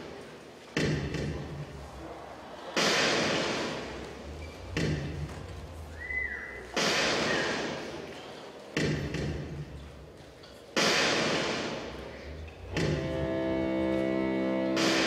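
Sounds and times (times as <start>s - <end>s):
heavy booming hits: 12.6s - 13.3s
held pitched chord: 12.9s - 15.0s.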